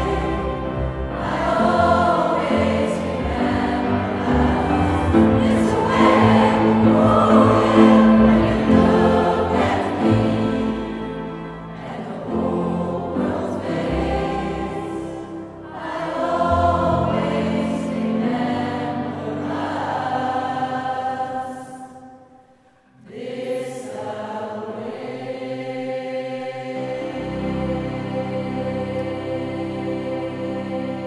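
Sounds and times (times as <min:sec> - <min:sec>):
violin: 0:00.0 - 0:19.4
mixed choir singing: 0:00.0 - 0:31.0
piano: 0:00.0 - 0:31.0.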